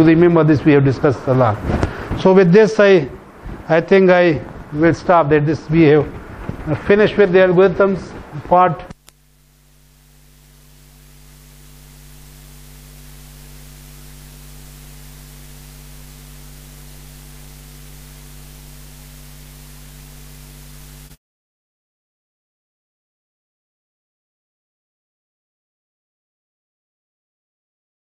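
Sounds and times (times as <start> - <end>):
low electrical mains hum: 0.0 - 21.2
steady hiss: 0.6 - 21.2.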